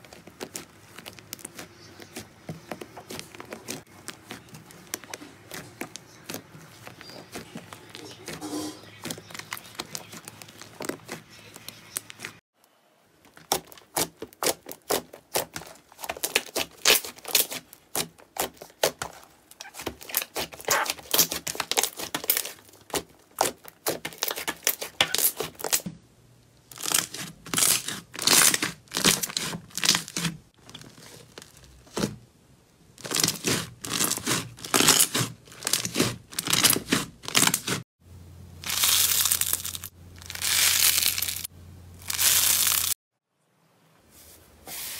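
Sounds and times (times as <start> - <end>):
slime crackling and popping: 0.0 - 8.4, 13.3 - 25.8, 38.6 - 43.0.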